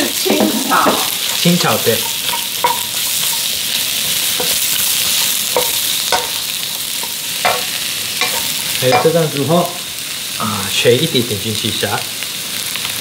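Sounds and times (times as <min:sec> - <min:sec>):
vegetables sizzling in oil: 0:00.0 - 0:13.0
utensil knocking against pan: 0:00.4 - 0:03.5, 0:04.1 - 0:09.2.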